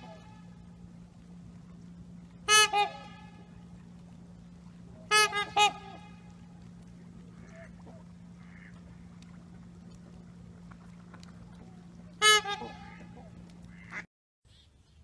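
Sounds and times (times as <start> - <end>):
steady low hum: 0.0 - 15.0
goose honk: 2.4 - 3.5, 5.0 - 6.3, 7.3 - 8.9, 12.2 - 14.1
faint waterfowl calls: 2.4 - 3.7, 4.9 - 9.6, 10.6 - 14.7.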